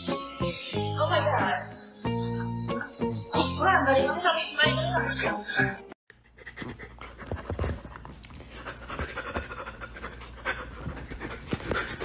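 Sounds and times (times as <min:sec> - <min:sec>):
animal panting: 0:05.3 - 0:12.0.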